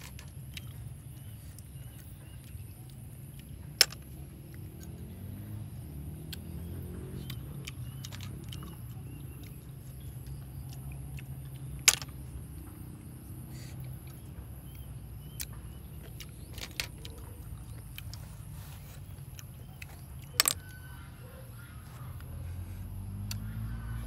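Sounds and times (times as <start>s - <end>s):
snail shells clicking: 6.2s - 18.3s, 19.1s - 21.2s.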